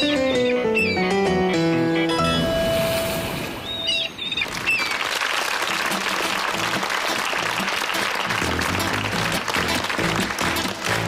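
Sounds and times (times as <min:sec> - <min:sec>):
audience applauding: 0:04.4 - 0:11.0
plucked double bass: 0:08.3 - 0:11.0.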